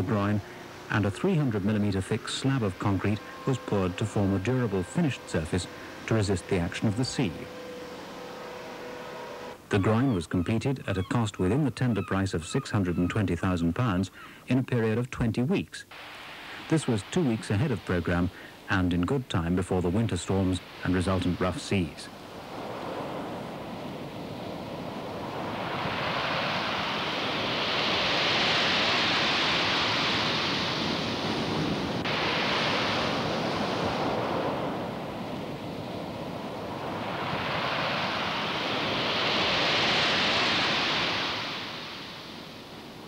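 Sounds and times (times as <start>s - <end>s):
waves crashing on concrete: 20.2s - 43.0s.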